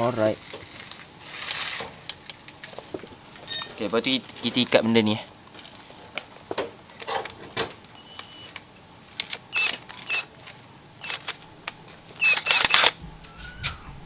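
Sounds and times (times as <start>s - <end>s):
metal tools clicking and clinking: 3.4s - 3.9s, 7.0s - 8.6s, 11.0s - 11.5s.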